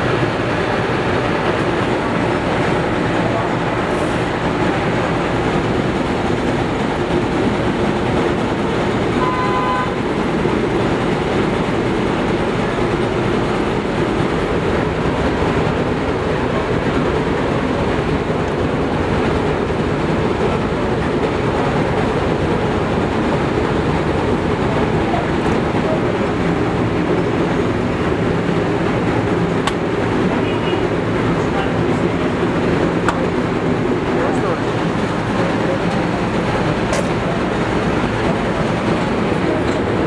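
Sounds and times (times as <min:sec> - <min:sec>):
loud machine noise: 0:00.0 - 0:40.0
short pitched tone: 0:09.2 - 0:10.0.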